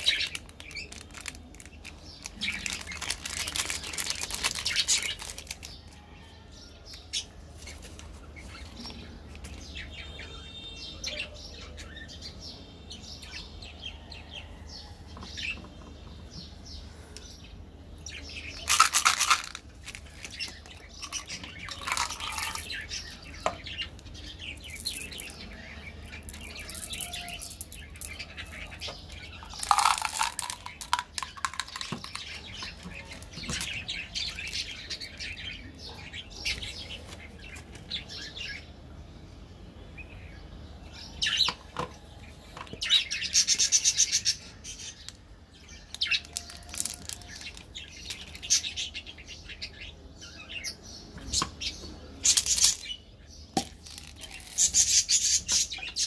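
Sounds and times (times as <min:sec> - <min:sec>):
plastic wrappers crinkling: 0:00.0 - 0:06.0, 0:18.6 - 0:23.1, 0:26.1 - 0:34.8, 0:46.0 - 0:48.6, 0:52.3 - 0:52.9, 0:53.6 - 0:55.0.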